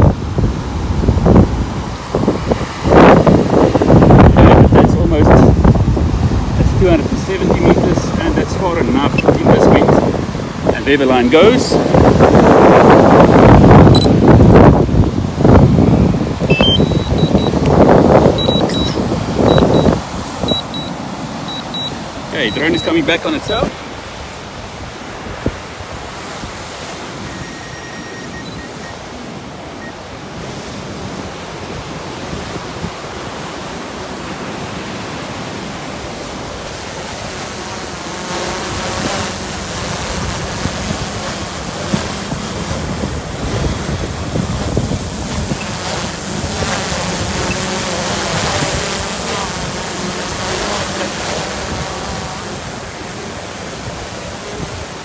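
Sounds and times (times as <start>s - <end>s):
wind buffeting microphone: 0.0s - 27.3s, 38.6s - 55.0s
strong wind: 0.0s - 55.0s
surf: 0.0s - 55.0s
drone propeller hum: 12.2s - 23.6s, 33.9s - 55.0s.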